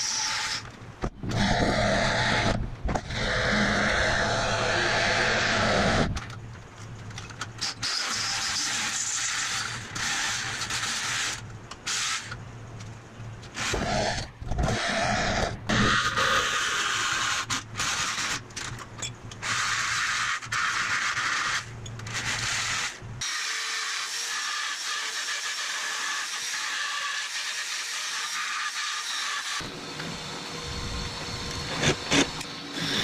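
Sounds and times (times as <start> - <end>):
jigsaw cutting metal: 7.6 - 12.4, 13.6 - 18.4, 19.4 - 29.8, 31.2 - 33.0.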